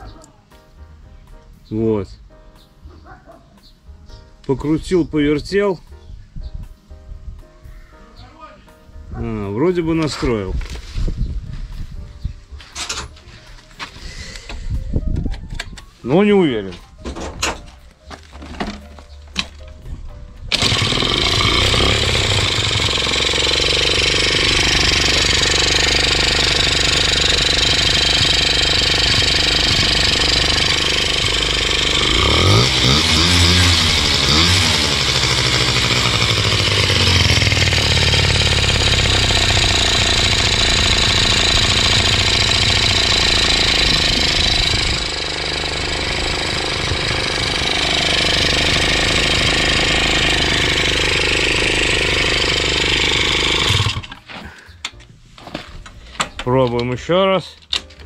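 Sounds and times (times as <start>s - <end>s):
scooter engine revving: 20.5s - 54.3s.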